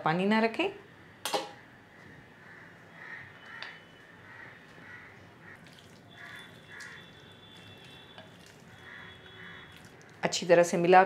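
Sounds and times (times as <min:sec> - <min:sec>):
soft wet mixing sounds: 0:02.8 - 0:10.9.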